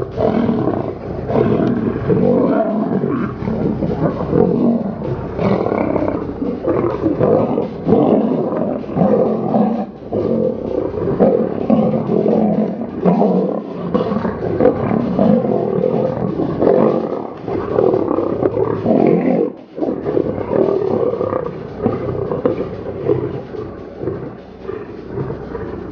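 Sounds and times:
lions roaring and growling: 0.0s - 25.9s.

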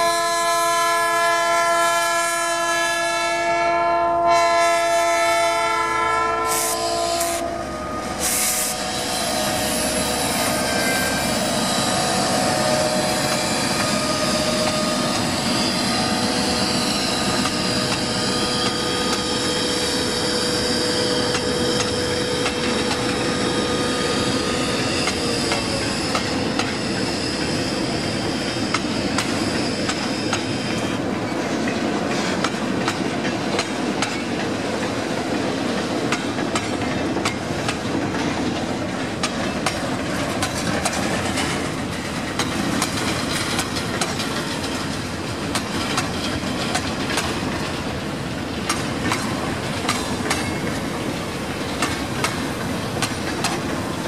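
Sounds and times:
freight train rolling past: 0.0s - 54.0s
thin high whine: 6.5s - 26.1s
wheels clacking over rail joints: 8.7s - 54.0s.

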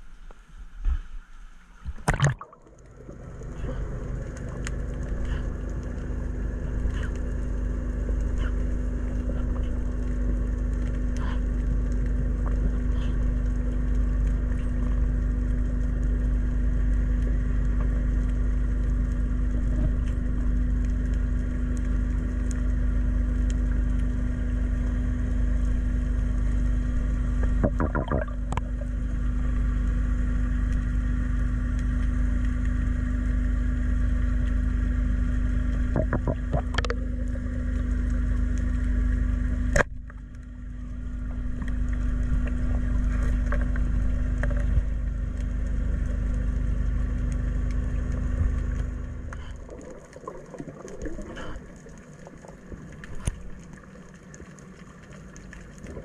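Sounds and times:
underwater boat engine hum: 0.0s - 56.0s
wavering burble: 2.0s - 5.5s, 27.6s - 29.0s.

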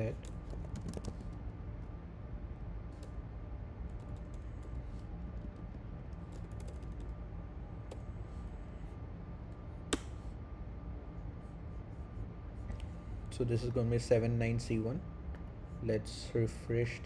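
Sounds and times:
steady low hum: 0.0s - 17.0s
keyboard typing clicks: 6.4s - 7.1s.

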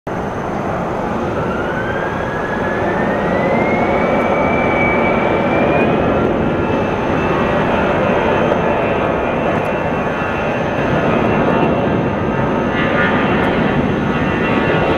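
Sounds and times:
jet engines spooling up: 0.1s - 14.9s.

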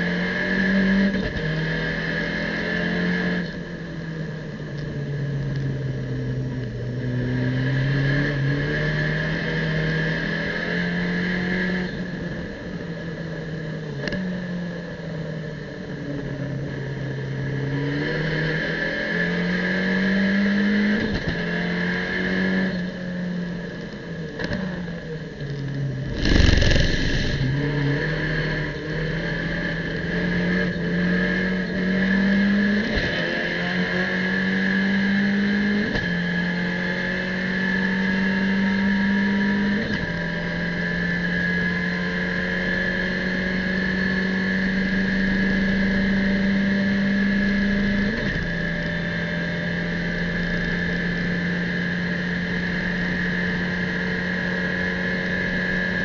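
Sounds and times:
race car engine accelerating: 25.9s - 56.0s
gear upshifts: 26.0s - 28.0s.

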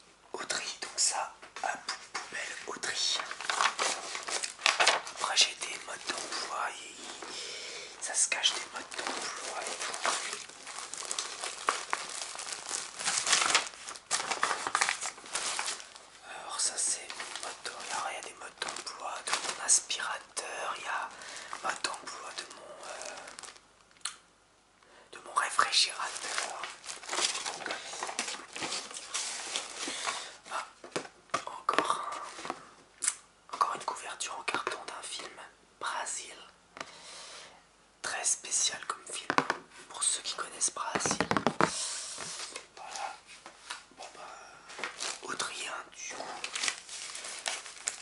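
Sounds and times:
packaging crinkling: 2.4s - 7.4s, 8.0s - 23.6s, 25.4s - 31.1s, 44.7s - 48.0s.

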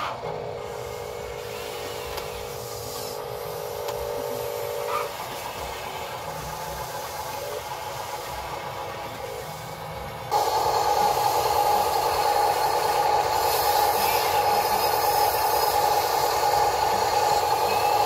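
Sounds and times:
small electric motors whining: 10.3s - 18.0s.

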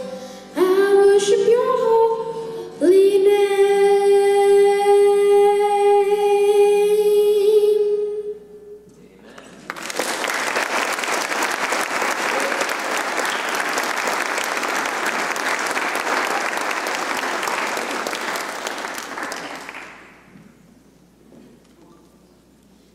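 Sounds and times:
congregation applauding: 9.4s - 20.3s.

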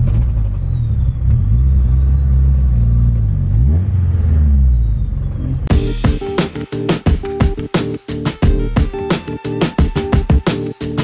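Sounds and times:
car engine running at low revs: 0.0s - 5.8s.

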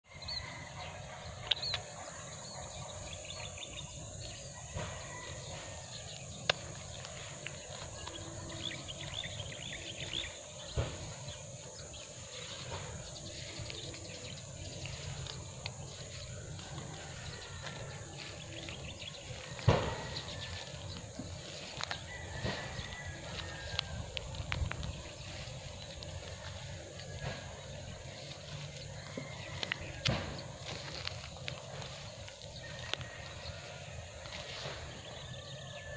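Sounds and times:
birds chirping: 0.0s - 35.9s.

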